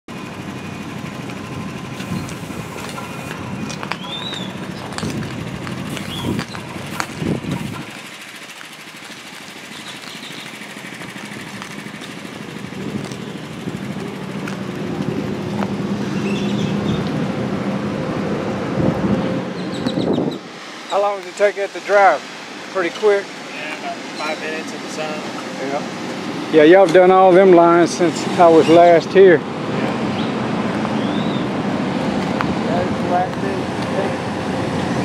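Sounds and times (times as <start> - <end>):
small gasoline engine running: 0.1 - 16.7.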